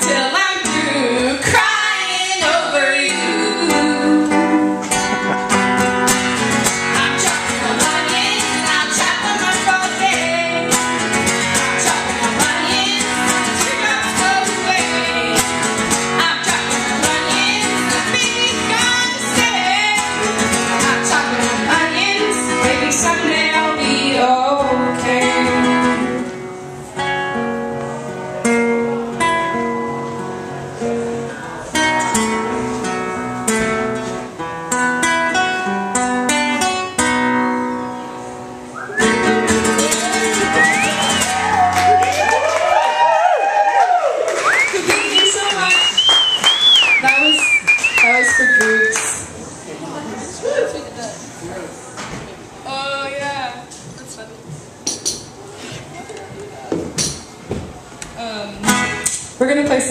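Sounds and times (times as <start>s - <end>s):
women singing: 0.0s - 4.9s, 7.0s - 10.7s, 11.6s - 15.5s, 16.1s - 26.2s
acoustic guitar strumming: 0.0s - 41.9s, 58.2s - 59.3s.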